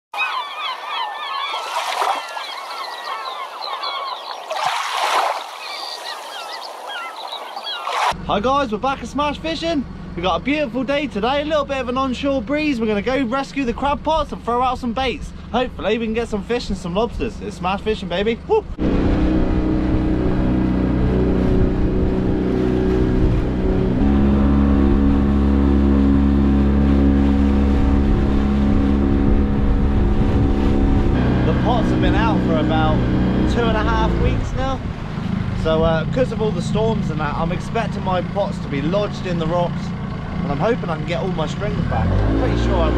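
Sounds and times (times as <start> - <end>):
flock of birds calling: 0.1 - 8.1
water rushing along hull: 0.2 - 42.9
boat engine running: 7.6 - 42.9.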